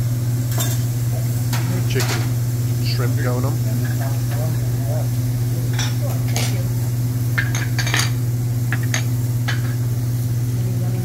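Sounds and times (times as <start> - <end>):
steady low hum: 0.0 - 11.0
metal utensils clinking on griddle: 0.5 - 0.9, 1.5 - 2.3, 5.7 - 6.6, 7.4 - 9.8.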